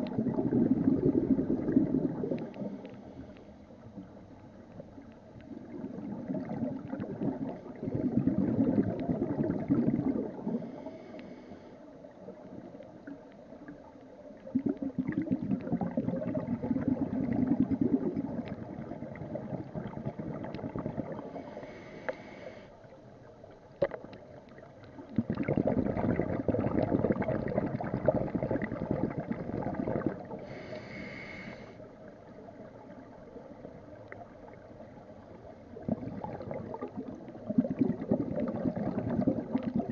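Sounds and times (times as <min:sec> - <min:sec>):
bubbling underwater exhalations: 0:00.0 - 0:02.8, 0:05.5 - 0:10.7, 0:14.4 - 0:21.7, 0:25.0 - 0:31.2, 0:35.7 - 0:39.9
regulator inhalation hiss: 0:21.3 - 0:22.8, 0:30.4 - 0:31.8.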